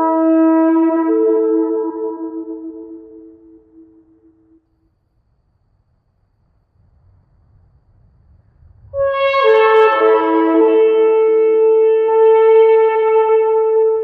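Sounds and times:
shofar blast: 0:00.0 - 0:04.6, 0:09.0 - 0:14.0.

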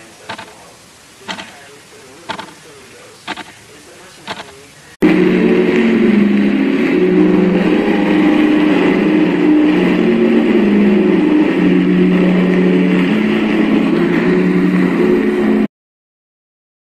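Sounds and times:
steady hiss: 0:00.0 - 0:05.1
male voices droning chant: 0:00.0 - 0:15.7.

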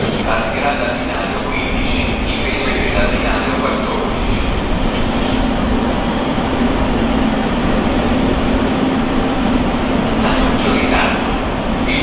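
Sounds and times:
train station noise: 0:00.0 - 0:12.0.

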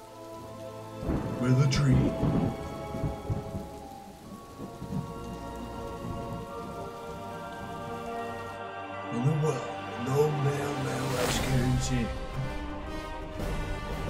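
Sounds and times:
thunder rumble: 0:00.0 - 0:08.6
droning music score: 0:00.0 - 0:14.0
rain: 0:00.0 - 0:14.0.

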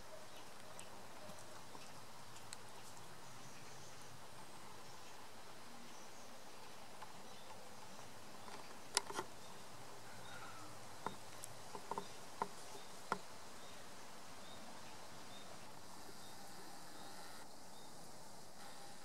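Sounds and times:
insect chirping: 0:08.0 - 0:19.0.

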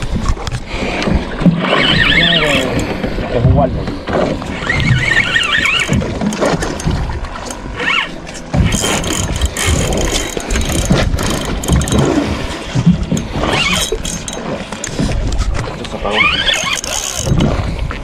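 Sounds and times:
wind rumble on microphone: 0:00.0 - 0:18.0
short rising and falling squeals: 0:01.7 - 0:02.8, 0:04.5 - 0:06.0
spinning reel cranking: 0:01.7 - 0:03.0, 0:04.5 - 0:12.1, 0:13.1 - 0:14.4, 0:16.2 - 0:17.5.

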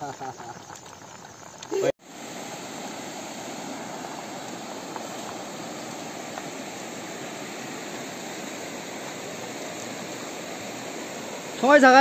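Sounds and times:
river running over stones: 0:01.2 - 0:12.0.

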